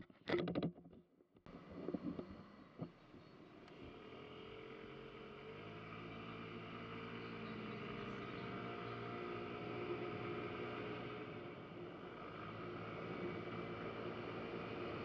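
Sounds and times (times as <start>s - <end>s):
scooter engine pulling away: 3.4s - 15.0s.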